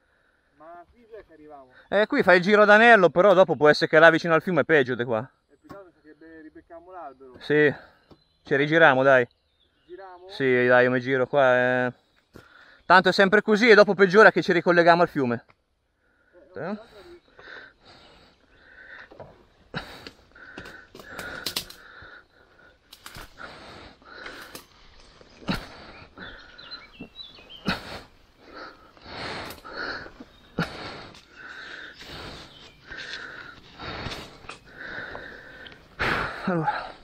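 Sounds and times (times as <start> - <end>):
man breathing heavily: 0.0 - 0.6, 12.3 - 12.9, 15.8 - 37.0.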